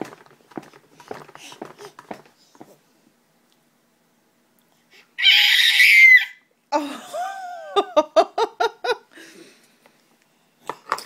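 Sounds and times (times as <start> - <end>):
toddler squealing: 5.2 - 6.4.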